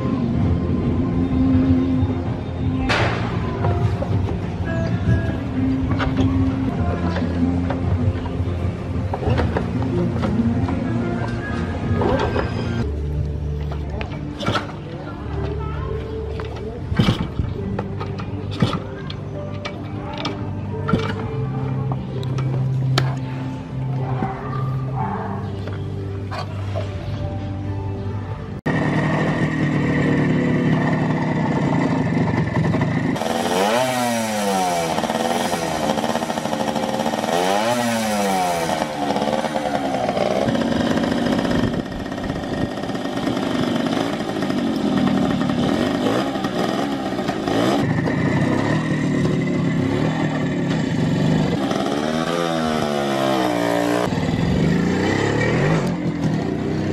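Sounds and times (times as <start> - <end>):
two-stroke motorcycle engine revving: 28.6 - 56.9.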